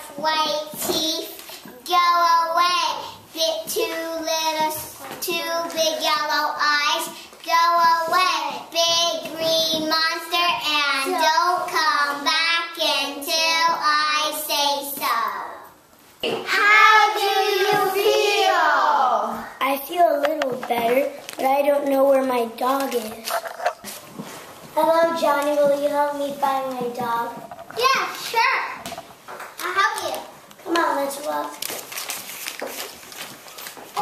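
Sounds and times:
young children singing: 0:16.3 - 0:19.6.

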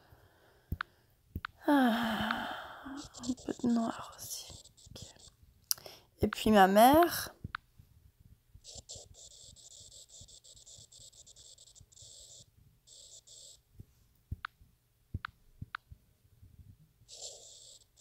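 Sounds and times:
scratchy rubbing on touchscreen: 0:03.0 - 0:05.4, 0:08.6 - 0:13.7, 0:17.1 - 0:18.0.

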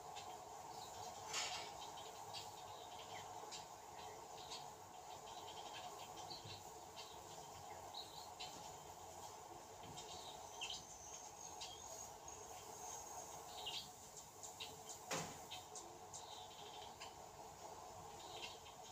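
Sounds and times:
steady low hiss: 0:00.0 - 0:18.9.

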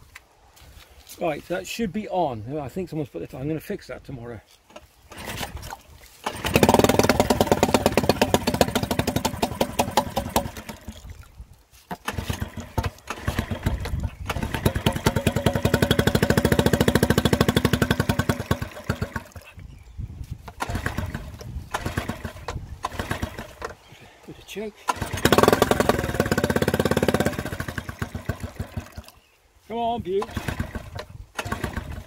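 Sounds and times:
outboard engine running: 0:05.1 - 0:11.2, 0:11.9 - 0:19.6, 0:20.5 - 0:23.8, 0:24.9 - 0:29.2, 0:30.1 - 0:32.0.

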